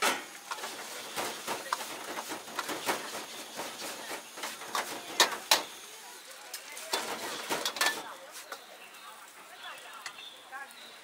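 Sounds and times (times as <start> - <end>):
metal ladle scraping a wok: 0.0 - 5.8
frying hiss: 0.0 - 11.0.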